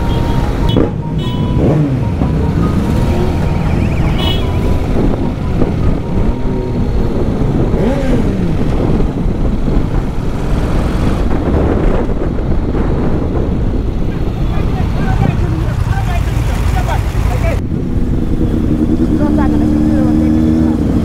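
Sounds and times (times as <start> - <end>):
motorcycle engine running: 0.0 - 21.0
wind rush on microphone: 3.7 - 16.0.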